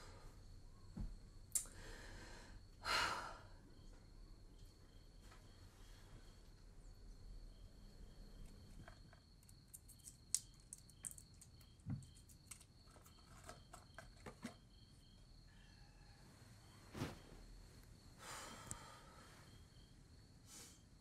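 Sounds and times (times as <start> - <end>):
crickets chirring: 0.0 - 21.0.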